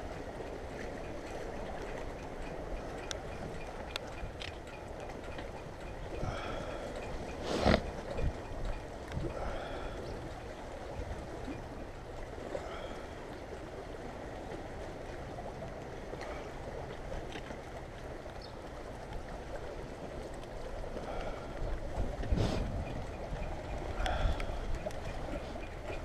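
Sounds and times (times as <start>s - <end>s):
faint clicks: 0.5s - 10.6s.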